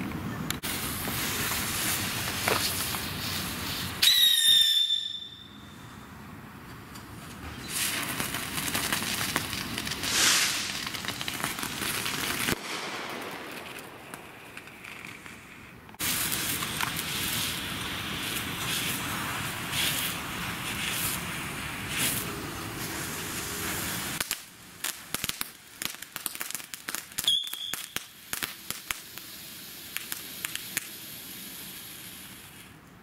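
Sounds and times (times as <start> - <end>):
fireworks sparks hissing: 0.6 - 5.8, 7.5 - 32.8
short high whistle: 4.0 - 5.8, 27.2 - 28.0.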